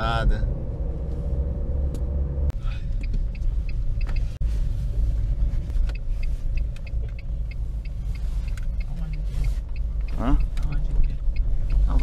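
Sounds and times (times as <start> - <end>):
car engine and road rumble: 0.0 - 12.0
faint light ticks: 5.6 - 12.0.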